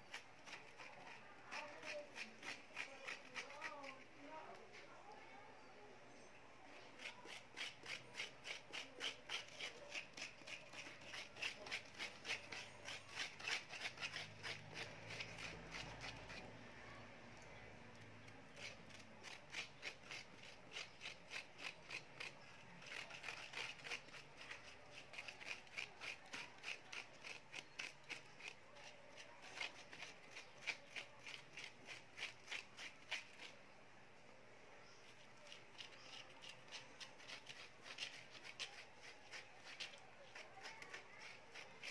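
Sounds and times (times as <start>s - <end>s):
metal spoon scraping in bowl: 6.3s - 16.6s.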